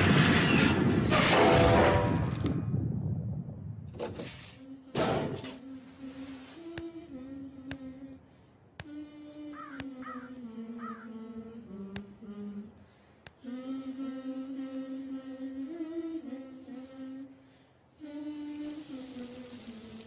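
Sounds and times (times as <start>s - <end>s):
slow hummed vocal melody: 4.6s - 20.0s.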